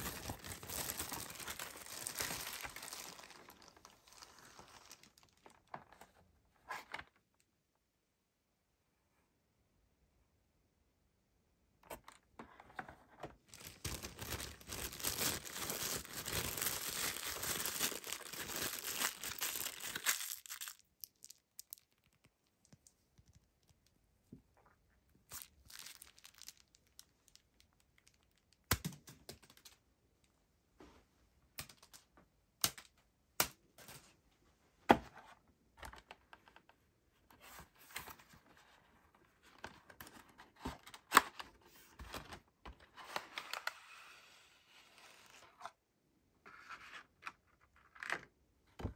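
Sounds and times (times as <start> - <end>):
packaging tearing and crinkling: 0.0 - 5.6, 13.5 - 22.1, 25.3 - 27.4.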